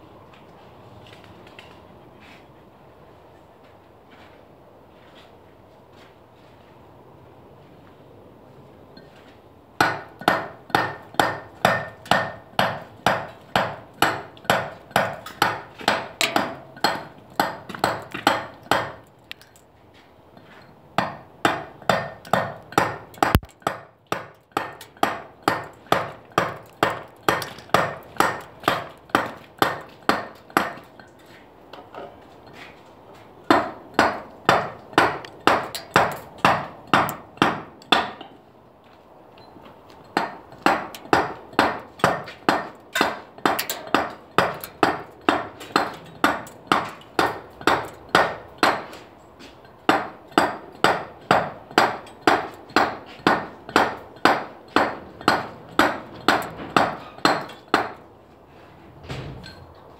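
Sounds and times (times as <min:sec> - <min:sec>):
mallet striking chisel on stone: 0:09.8 - 0:19.5, 0:21.0 - 0:30.8, 0:49.9 - 0:58.0.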